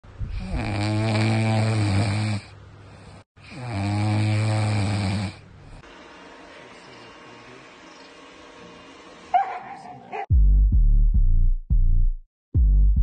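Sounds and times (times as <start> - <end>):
puppy snoring: 0.3 - 5.8.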